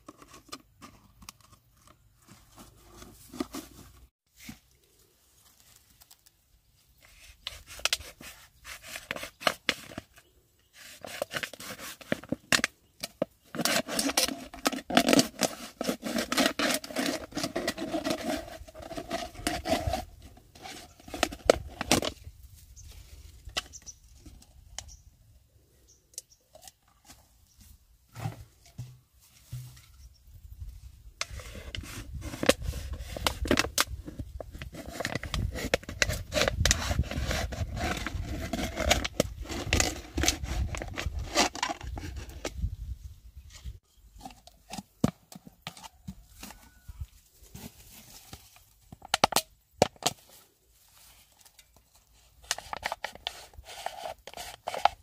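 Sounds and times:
plastic scraping and rubbing: 0.0s - 4.6s, 7.0s - 22.3s, 31.2s - 42.8s, 51.5s - 55.0s.

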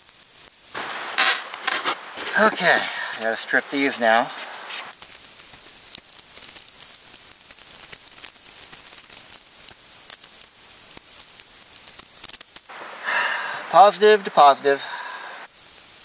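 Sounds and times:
steady high hiss: 0.0s - 16.0s
electrical wire being stripped: 0.8s - 2.6s.

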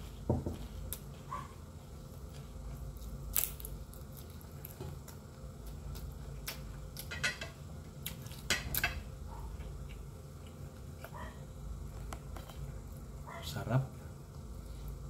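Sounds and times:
low steady hum: 0.0s - 15.0s
chewing and mouth clicks: 3.0s - 7.1s.

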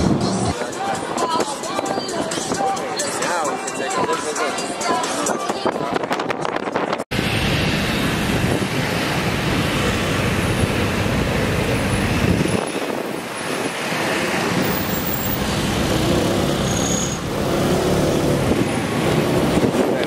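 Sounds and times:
scooters and cars passing: 7.2s - 20.0s.

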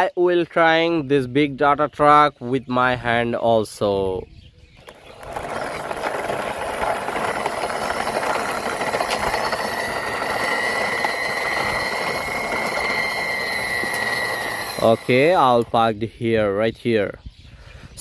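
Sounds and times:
toy truck wheels rolling on concrete: 4.7s - 15.8s
high squeal: 6.8s - 15.6s.

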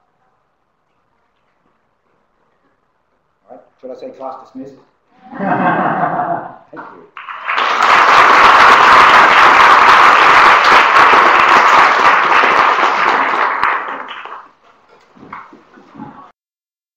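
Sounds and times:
audience applauding: 7.1s - 15.6s.

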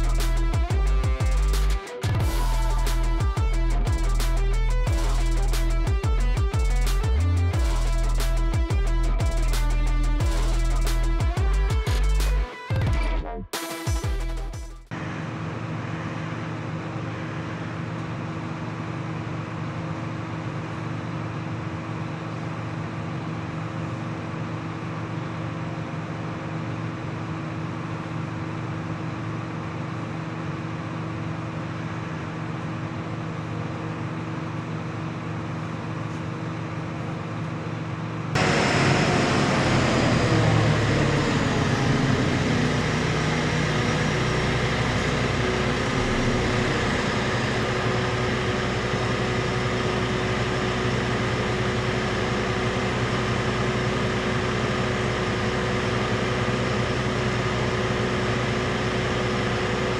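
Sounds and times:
low mechanical hum: 14.9s - 59.9s
hissy machine noise: 38.4s - 49.4s.

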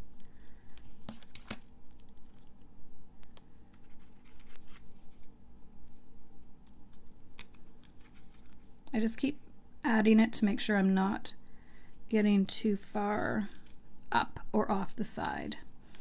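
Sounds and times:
paper and tape rustling: 0.0s - 2.7s, 3.7s - 5.4s, 6.8s - 8.8s, 13.1s - 14.0s, 14.9s - 16.0s.

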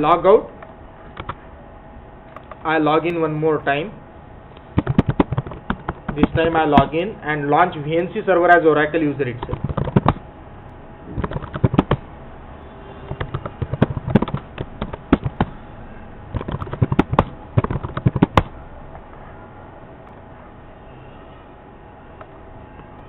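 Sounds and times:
computer keyboard typing: 4.6s - 7.0s, 9.4s - 10.2s, 11.1s - 12.1s, 13.1s - 15.6s, 16.3s - 18.6s.

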